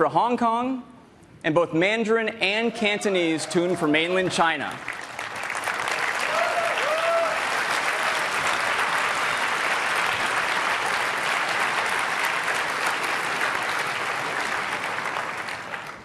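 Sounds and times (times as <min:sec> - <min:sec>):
audience applauding: 0:04.7 - 0:16.0
person whooping: 0:06.2 - 0:07.4.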